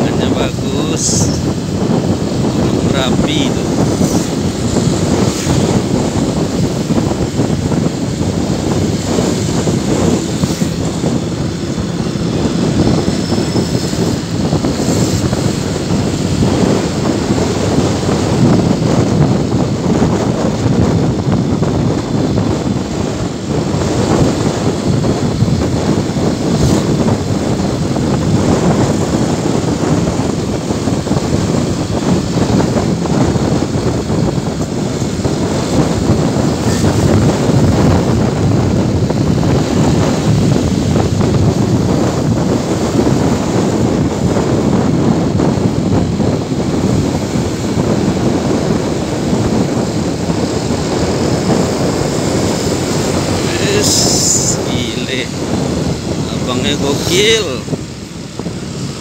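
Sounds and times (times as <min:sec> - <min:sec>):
motorcycle engine and road noise: 0:00.0 - 0:59.0
wind buffeting microphone: 0:00.0 - 0:59.0.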